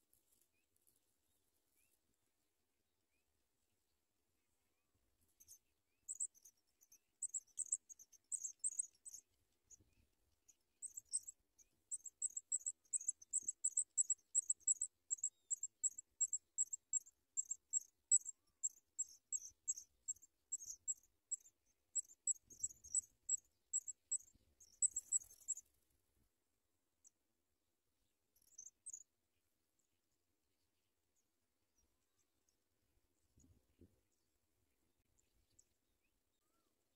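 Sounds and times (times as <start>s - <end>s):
nestlings peeping: 11.9s - 25.7s.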